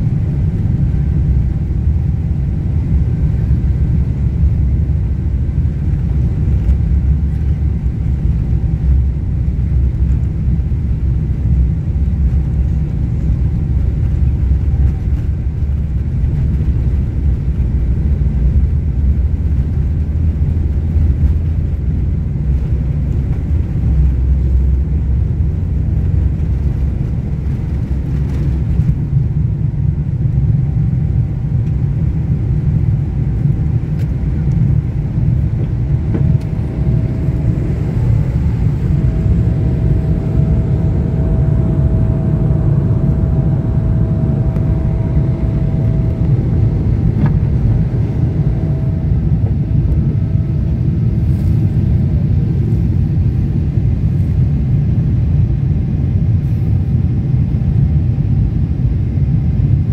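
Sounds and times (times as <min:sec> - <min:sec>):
airliner engines rumbling: 0:00.0 - 0:59.9
faint whining tones: 0:32.9 - 0:53.4.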